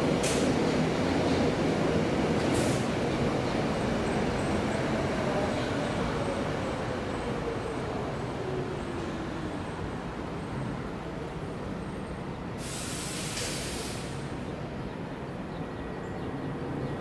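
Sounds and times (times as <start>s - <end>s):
short hiss: 12.6s - 14.3s.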